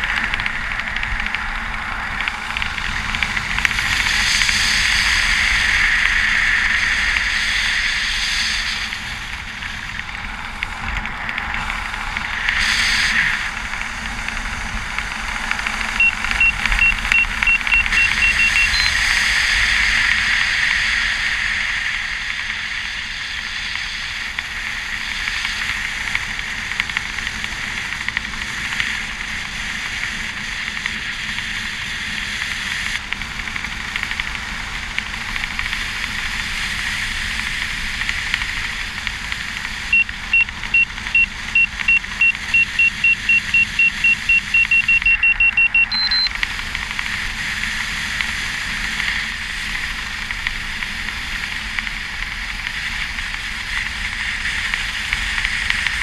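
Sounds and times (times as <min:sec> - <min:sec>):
wind rushing over camera: 0:00.0 - 0:56.0
electronic beeper short beeps: 0:16.0 - 0:19.0, 0:39.9 - 0:46.3
short high-pitched tone: 0:16.0 - 0:19.0, 0:39.9 - 0:46.3.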